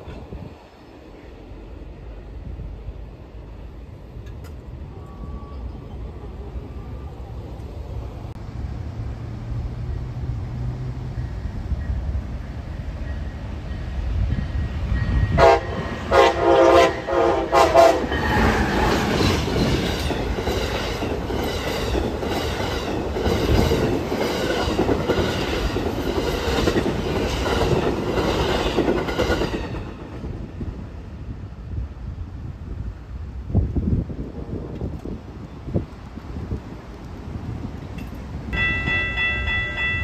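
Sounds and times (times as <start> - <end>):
train rumbling past: 0.0 - 40.0
train horn blasts: 15.2 - 18.6.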